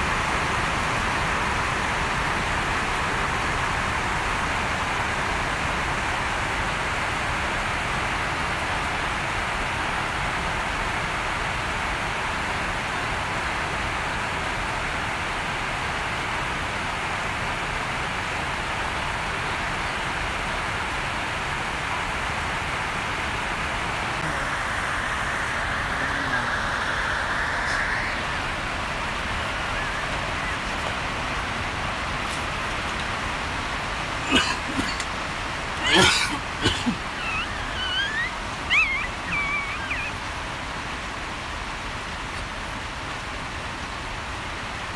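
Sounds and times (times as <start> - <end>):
steady hiss: 17.0 - 44.9.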